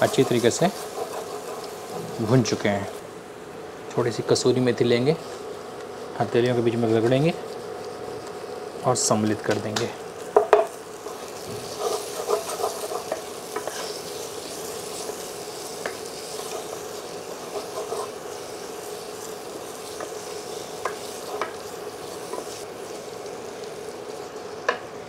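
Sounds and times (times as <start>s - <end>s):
steady sizzle: 0.0s - 25.0s
spatula scraping metal pot: 11.1s - 14.2s.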